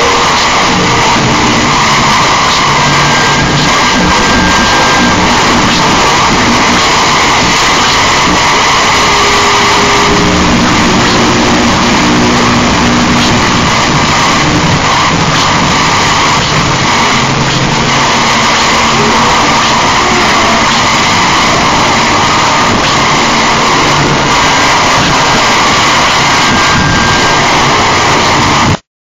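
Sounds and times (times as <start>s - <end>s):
low steady tones: 0.0s - 28.8s
wall of distorted noise: 0.0s - 28.9s.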